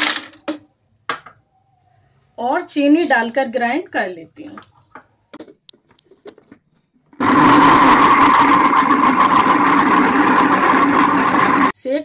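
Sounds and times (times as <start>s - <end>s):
mixer grinder running: 7.2s - 11.8s.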